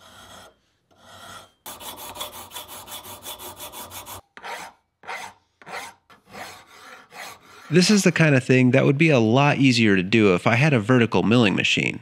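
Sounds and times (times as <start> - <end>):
hand file rasping on metal: 0.0 - 8.3.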